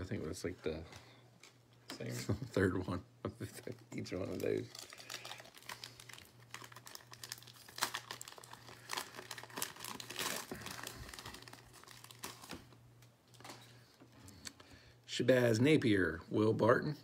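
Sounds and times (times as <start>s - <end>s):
foil wrapper tearing and crinkling: 4.2s - 13.4s.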